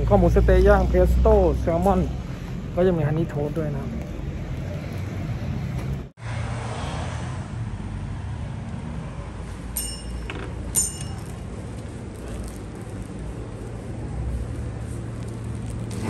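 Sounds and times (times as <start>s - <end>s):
high ringing sounds: 9.7s - 11.6s.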